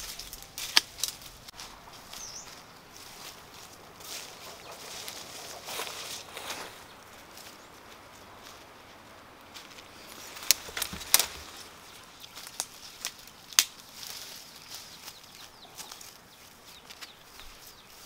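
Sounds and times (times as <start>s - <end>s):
twigs snapping: 0.0s - 1.6s, 9.4s - 16.1s
footsteps through dry undergrowth: 0.0s - 18.0s.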